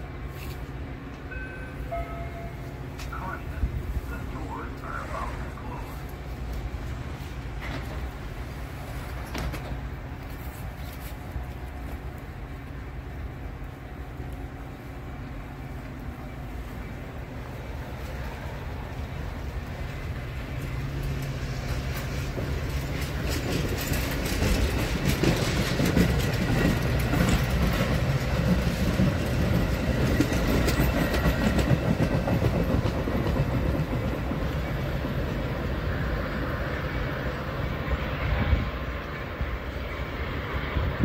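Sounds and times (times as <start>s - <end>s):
train coaches rolling past: 0.0s - 41.0s
wheels clicking over rail joints: 18.9s - 35.8s.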